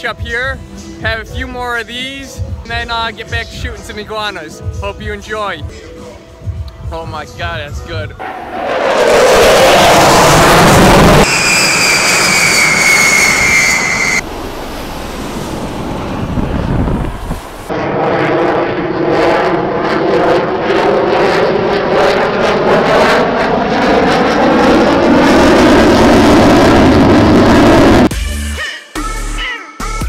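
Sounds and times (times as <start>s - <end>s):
bomber jet engine whine: 5.6s - 28.1s
fighter jet passing: 8.2s - 28.1s.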